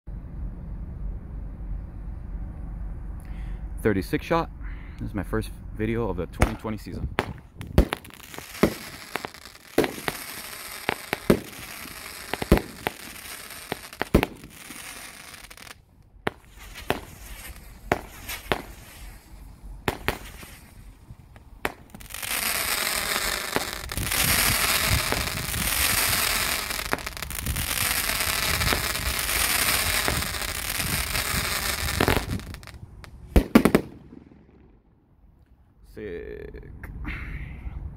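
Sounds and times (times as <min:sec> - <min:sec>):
firework launch thumps and bursts: 0:06.4 - 0:06.6, 0:07.2 - 0:34.8
firework crackling: 0:06.4 - 0:34.8
loud firework bangs: 0:06.4 - 0:34.8.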